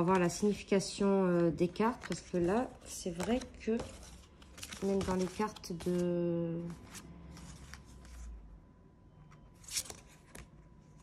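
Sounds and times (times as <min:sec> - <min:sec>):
cards rustling and sliding: 0:01.9 - 0:06.0, 0:09.6 - 0:10.6.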